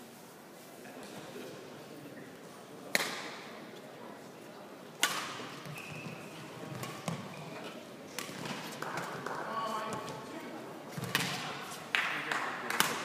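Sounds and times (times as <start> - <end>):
racket striking shuttlecock: 5.0 - 5.4, 12.7 - 13.0.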